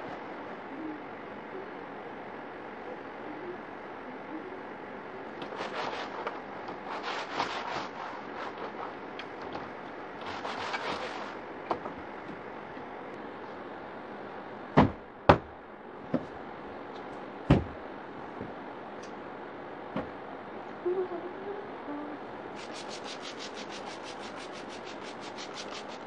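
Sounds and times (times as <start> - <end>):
cloth rubbing on frame: 5.4 - 9.2, 10.2 - 11.4, 22.6 - 26.0.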